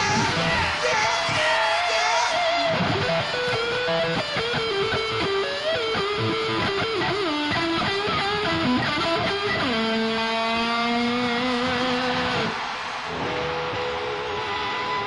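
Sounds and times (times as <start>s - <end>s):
electric guitar lead: 0.0s - 15.0s
rock drums and bass: 2.8s - 12.5s.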